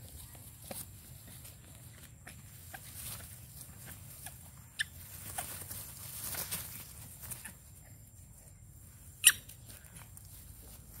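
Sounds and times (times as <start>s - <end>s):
monkeys scuffling in dry leaves: 0.0s - 7.8s
monkey squeaking: 4.2s - 5.5s, 9.2s - 9.5s.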